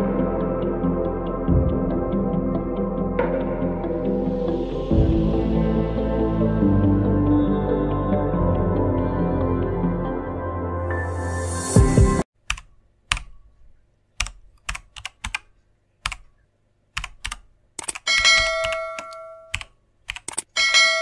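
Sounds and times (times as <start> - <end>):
ambient music: 0.0 - 12.2
typing clicks: 12.4 - 13.4, 14.2 - 16.3, 16.9 - 20.5
notification bell ding: 18.1 - 19.5.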